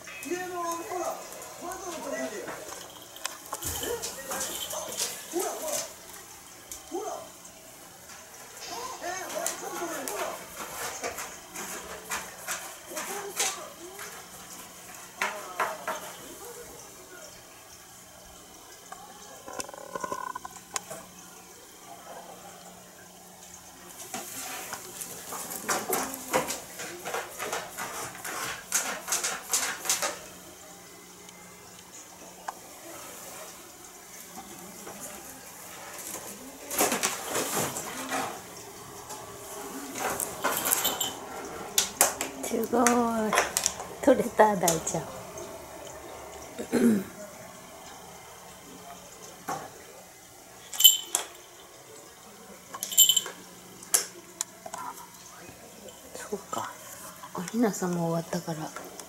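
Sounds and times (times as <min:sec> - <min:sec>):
cat collar bell jingling: 0:01.8 - 0:05.8, 0:40.5 - 0:41.2, 0:50.7 - 0:51.3, 0:52.8 - 0:53.4.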